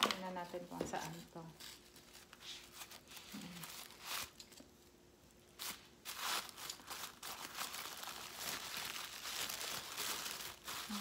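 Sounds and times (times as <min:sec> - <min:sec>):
tissue paper crinkling: 0:00.0 - 0:04.4, 0:05.6 - 0:11.0.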